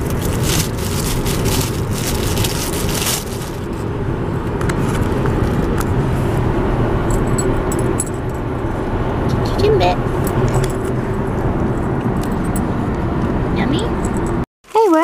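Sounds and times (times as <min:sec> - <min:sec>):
paper napkin rustling: 0:00.0 - 0:03.9
car road noise rumble: 0:00.0 - 0:14.5.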